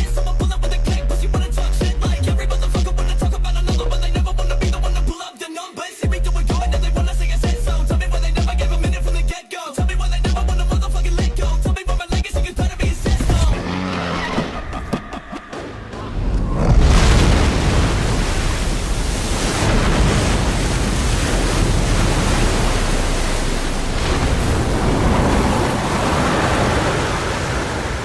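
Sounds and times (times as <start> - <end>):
loud rush of water and spray: 16.6 - 28.0.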